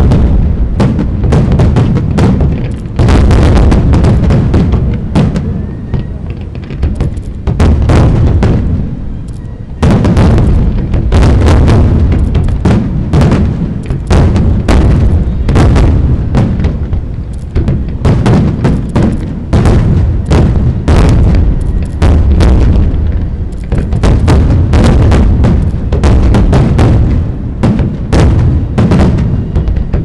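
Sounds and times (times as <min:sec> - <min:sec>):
fireworks booms and cracks: 0:00.0 - 0:30.0
low rumble: 0:00.0 - 0:30.0.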